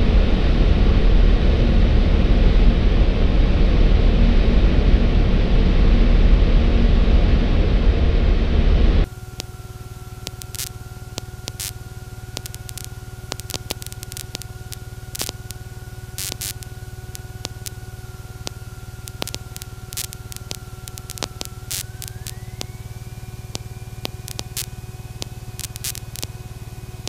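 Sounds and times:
low electrical buzz: 0.0s - 27.0s
thin electrical whine: 9.0s - 27.0s
crackling clicks: 9.3s - 22.8s, 23.4s - 26.4s.

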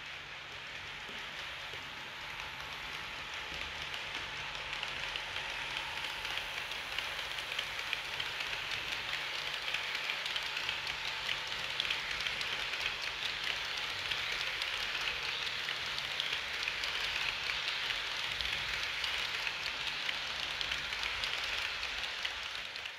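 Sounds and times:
model train wheels clicking: 0.0s - 22.9s.

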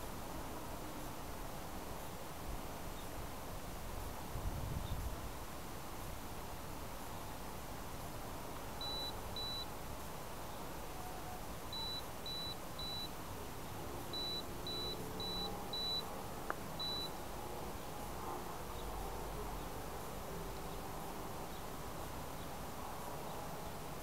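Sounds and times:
high-pitched electronic beeps: 8.8s - 9.7s, 11.8s - 13.1s, 14.2s - 16.1s, 16.8s - 17.1s.

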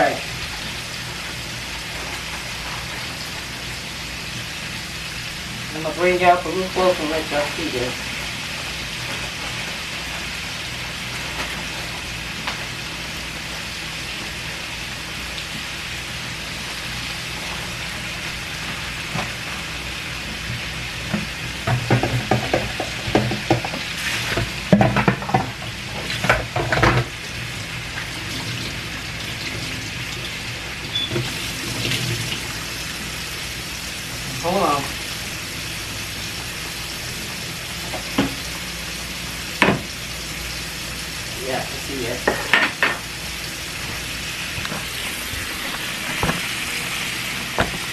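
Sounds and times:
chicken sizzling in hot oil: 0.0s - 47.9s.

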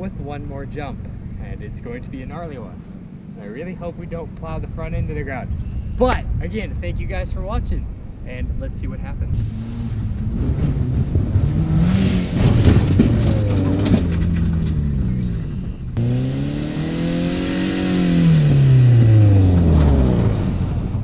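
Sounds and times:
car engine revving: 9.2s - 21.0s.

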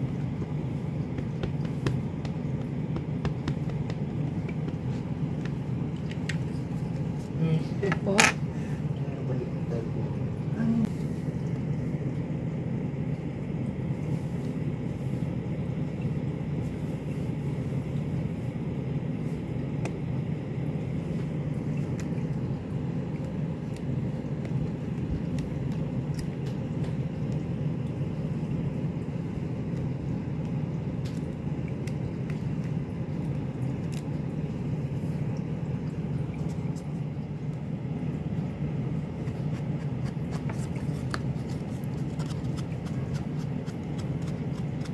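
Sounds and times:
low rumbling hum: 0.0s - 44.9s
faint taps and clicks: 0.3s - 6.6s.

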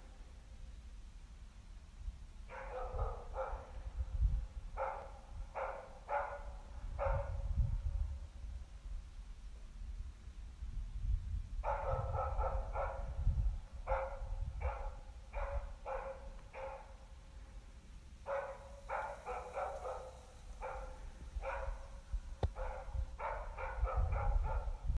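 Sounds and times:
dog barking: 2.5s - 3.9s, 4.8s - 7.6s, 11.6s - 17.1s, 18.2s - 24.9s.

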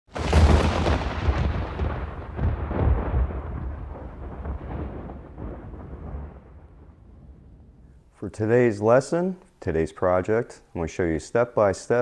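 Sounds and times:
deep rolling rumble: 0.2s - 8.1s.

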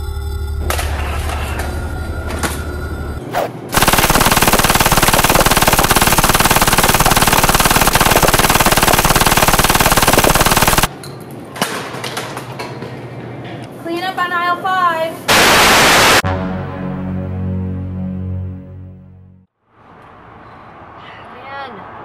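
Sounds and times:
music: 0.0s - 3.2s, 16.2s - 19.5s
machine-gun burst: 3.8s - 10.9s, 15.3s - 16.2s.

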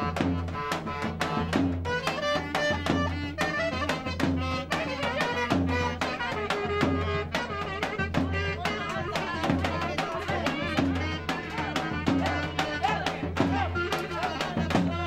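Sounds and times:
clarinet melody: 0.0s - 9.4s
driving drum beat: 0.0s - 15.0s.

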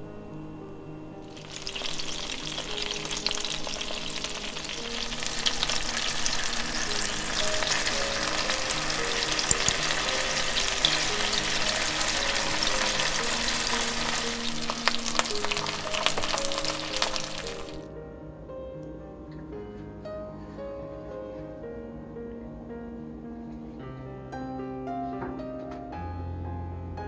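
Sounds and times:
background music: 0.0s - 27.0s
food frying in oil: 1.2s - 17.8s.

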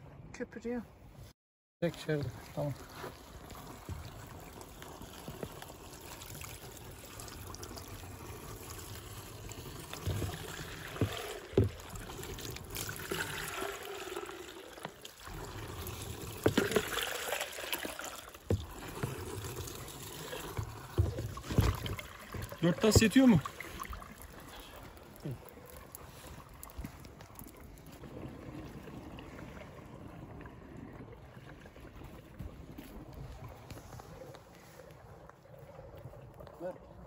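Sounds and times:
water pouring into a tank: 1.8s - 37.0s.

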